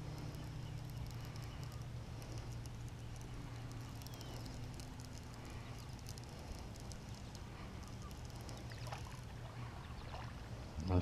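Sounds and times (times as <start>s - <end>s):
fishing reel ticking and clicking: 0.0s - 8.8s
steady low hum: 0.0s - 11.0s.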